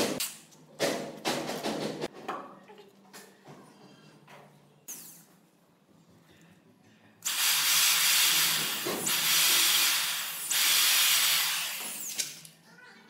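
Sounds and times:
electric drill boring into wood: 7.3s - 12.2s.

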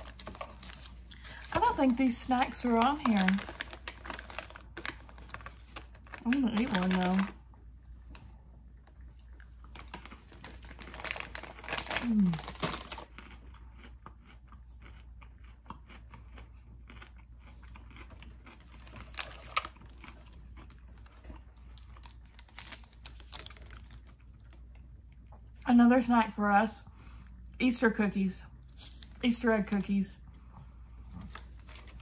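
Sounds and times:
crunchy pretzel chewing: 8.9s - 25.5s
person humming mmm: 12.0s - 12.5s.

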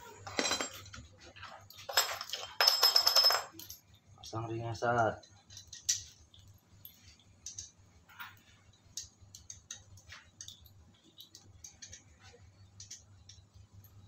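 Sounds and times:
light metal clicks and ticks: 5.2s - 13.6s.

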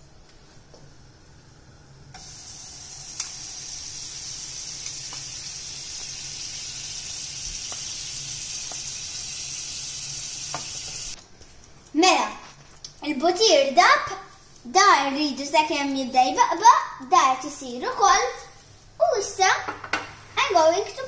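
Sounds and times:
butter sizzling in a frying pan: 2.2s - 11.2s.

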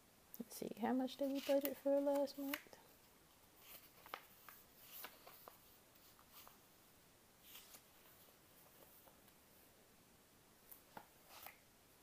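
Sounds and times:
paper rustle: 1.1s - 2.6s, 3.6s - 6.6s, 7.4s - 9.2s
planner pages turning: 1.2s - 2.7s, 3.6s - 6.6s, 10.7s - 11.6s.

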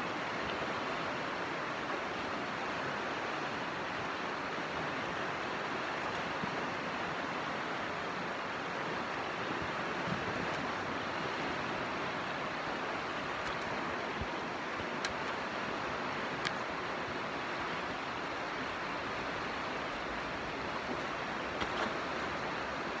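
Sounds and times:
river rapids rushing: 0.0s - 23.0s
faint clicks: 15.0s - 15.4s, 16.4s - 16.6s.

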